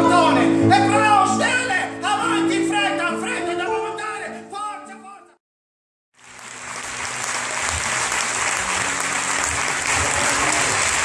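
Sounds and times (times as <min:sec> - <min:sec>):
audience clapping: 0:06.2 - 0:11.0.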